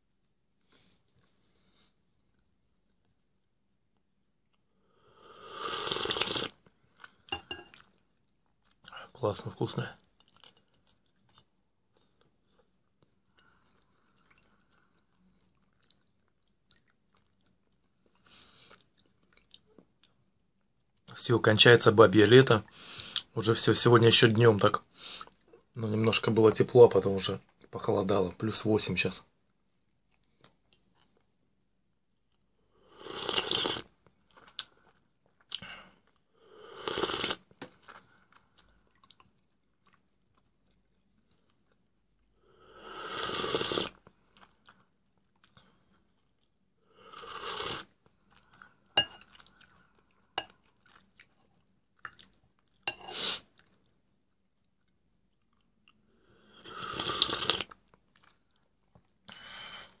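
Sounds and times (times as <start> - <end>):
man slurping soup: 5.2 - 6.6, 32.9 - 33.9, 36.6 - 37.4, 42.8 - 44.0, 47.1 - 47.9, 52.9 - 53.5, 56.5 - 57.7
quiet chewing: 10.1 - 21.1, 37.2 - 42.3, 43.9 - 46.7, 47.7 - 56.1, 57.2 - 59.4.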